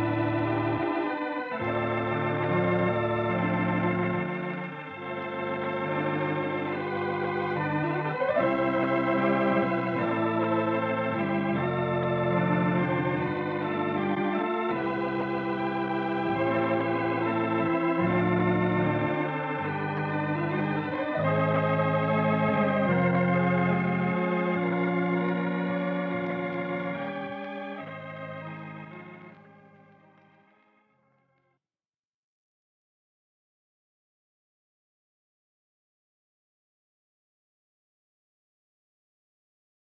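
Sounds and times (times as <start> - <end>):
organ playing slow chords: 0.0 - 31.2.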